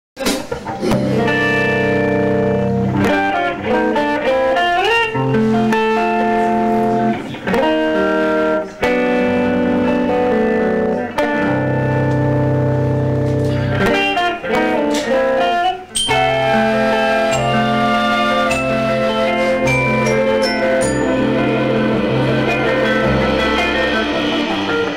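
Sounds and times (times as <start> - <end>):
guitar with bent notes: 0.2 - 24.9
instrumental band music: 0.2 - 24.9
bass line: 0.7 - 3.2, 16.1 - 24.9.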